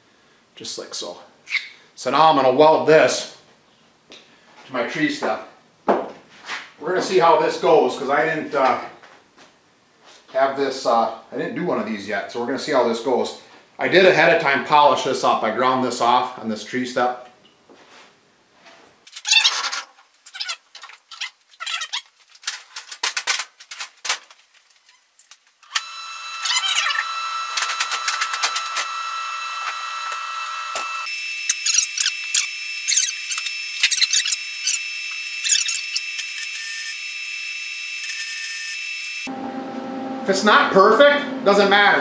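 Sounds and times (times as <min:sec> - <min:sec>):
arc welder crackling: 0:22.2 - 0:39.3.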